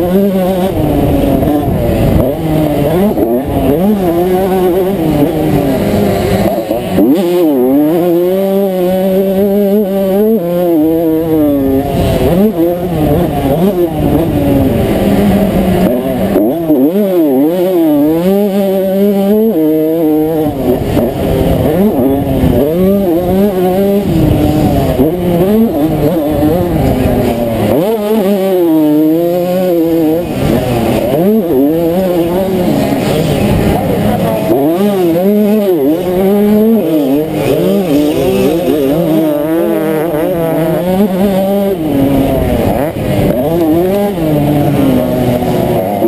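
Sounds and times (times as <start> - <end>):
two-stroke motorcycle engine revving: 0.0 - 46.0.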